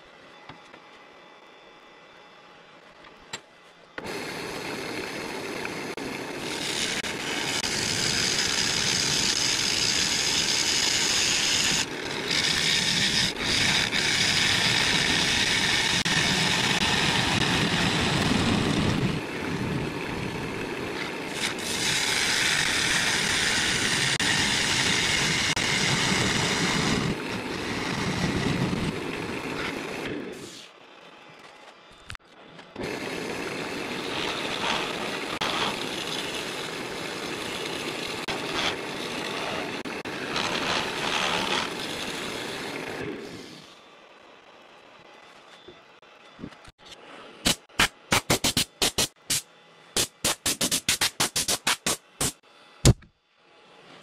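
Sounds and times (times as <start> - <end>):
wood lathe running: 4.0 - 30.0, 32.8 - 43.3
gouge hissing through wood: 21.3 - 27.0.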